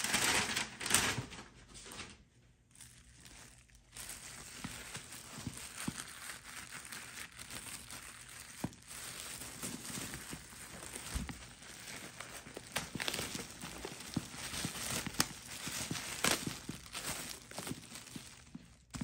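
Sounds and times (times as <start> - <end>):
plastic wrapping crinkling: 0.0 - 19.0.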